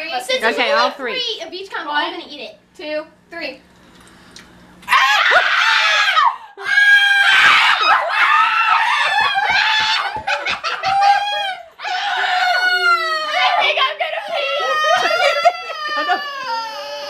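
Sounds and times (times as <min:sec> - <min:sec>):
people screaming: 0:04.8 - 0:17.0
people laughing: 0:08.7 - 0:17.0.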